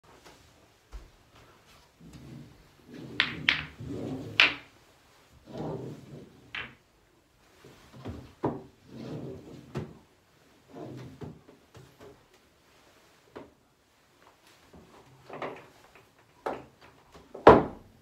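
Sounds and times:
balls thudding and rolling on table: 2.0 - 4.8, 5.4 - 6.9, 7.7 - 12.3, 14.7 - 17.9
pool balls clacking together: 2.8 - 4.7, 5.9 - 6.9, 15.2 - 17.8.

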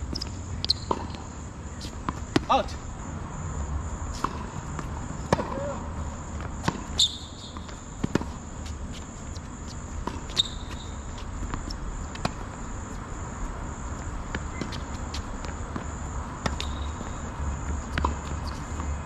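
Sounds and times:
insect chirring: 9.3 - 12.9.

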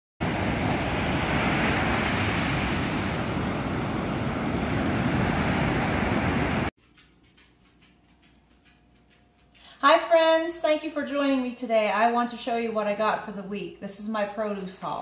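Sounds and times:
ocean surf breaking on beach: 0.2 - 6.7.

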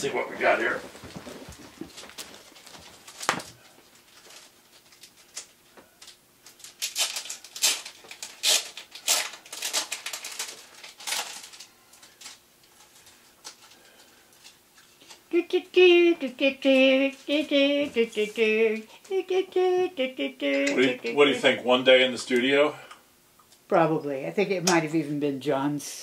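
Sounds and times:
paper sleeves rustling: 0.0 - 4.9.

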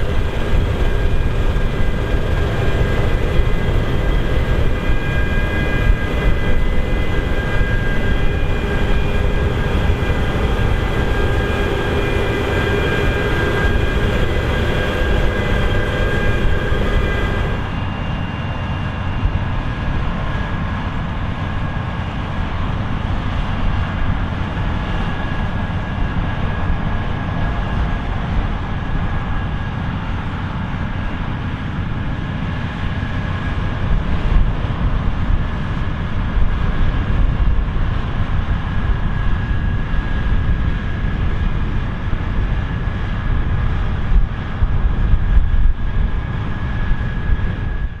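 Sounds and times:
high whine: 0.0 - 19.0
combine harvester drone: 0.0 - 48.0.

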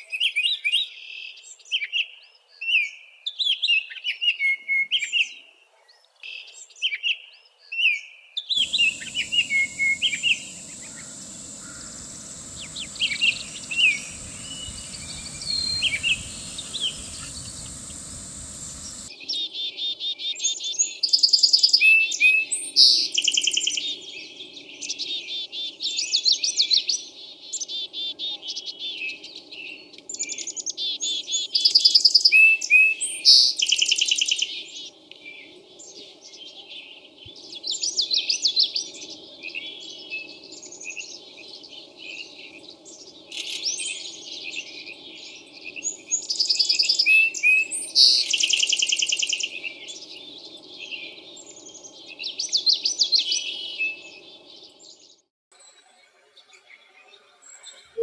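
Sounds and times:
bird singing whistled phrases: 8.6 - 19.1
dry rattling chatters: 8.6 - 19.1
thin high steady tone: 8.6 - 19.1
steady hiss: 8.6 - 19.2.

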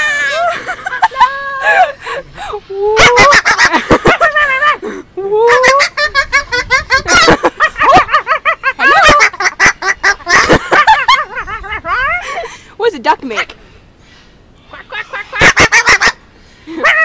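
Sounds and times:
cockatoo chattering: 14.6 - 16.2.

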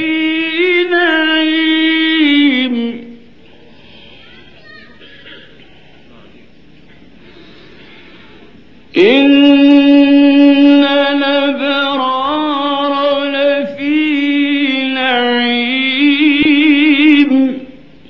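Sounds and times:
man reciting melodically: 0.0 - 3.3, 8.9 - 17.9.

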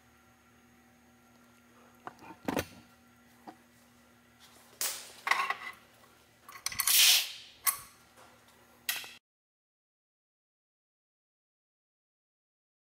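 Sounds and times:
short hissing bursts: 6.9 - 7.4.

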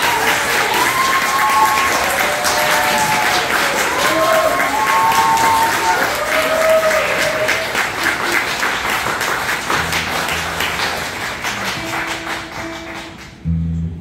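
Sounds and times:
audience applauding: 0.0 - 13.4.

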